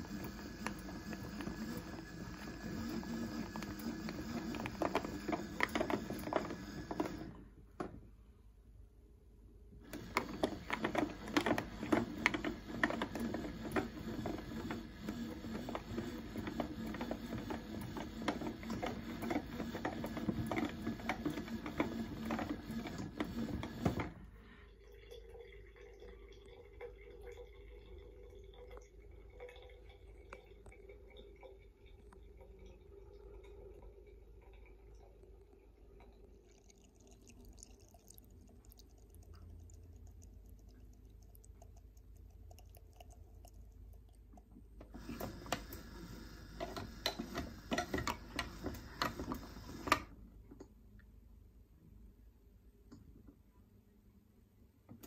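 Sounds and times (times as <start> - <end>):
toy washing machine whirring and rattling: 0.0 - 7.5, 9.8 - 24.4, 44.8 - 50.2
water trickling and dripping: 24.7 - 44.5.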